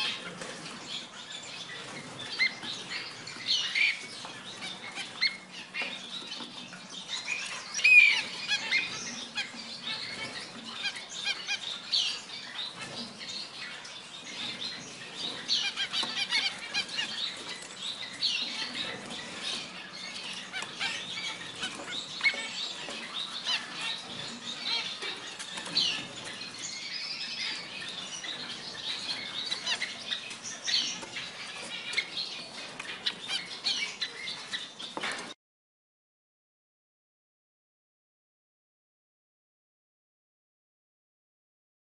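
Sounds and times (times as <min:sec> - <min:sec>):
finches chirping: 0:00.0 - 0:35.1.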